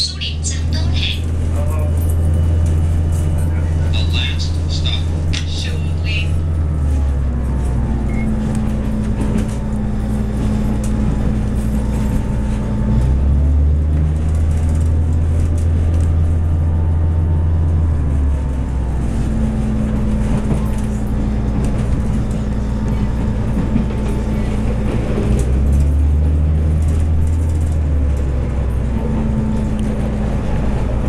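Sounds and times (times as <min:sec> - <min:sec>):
train diesel engine drone: 0:00.0 - 0:31.0
wheels on rails: 0:01.1 - 0:16.6, 0:18.0 - 0:31.0.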